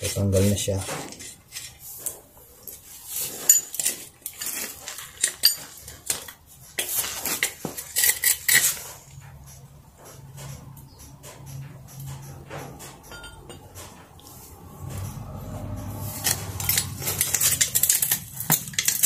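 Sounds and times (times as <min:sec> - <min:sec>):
tools clinking on metal: 0:03.4 - 0:09.3, 0:11.3 - 0:14.2, 0:15.9 - 0:19.0.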